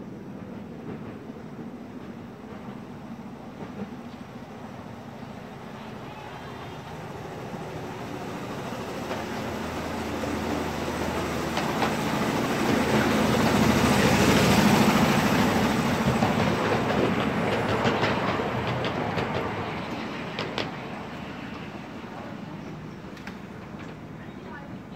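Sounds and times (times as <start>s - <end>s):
miniature train wheels rumbling on rails: 5.8s - 24.9s
wheels clicking over rail joints: 11.0s - 24.8s.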